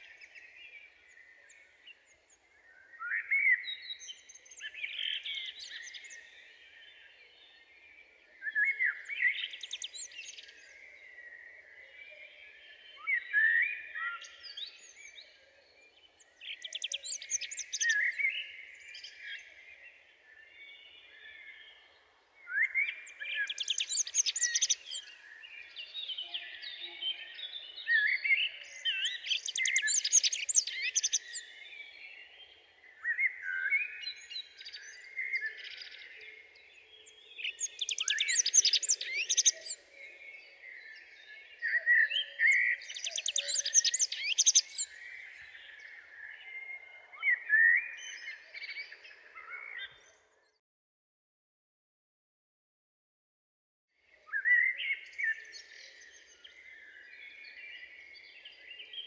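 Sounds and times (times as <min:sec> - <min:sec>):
bird chirps: 0:16.4 - 0:19.5, 0:22.4 - 0:50.6
songbird trilling: 0:29.0 - 0:31.4, 0:42.9 - 0:44.8.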